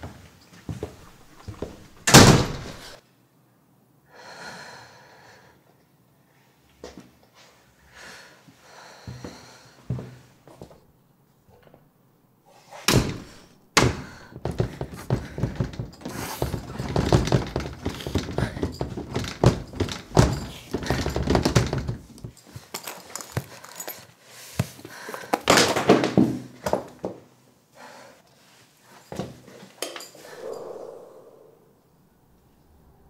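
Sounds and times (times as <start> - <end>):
door rattling: 12.9 - 22.2.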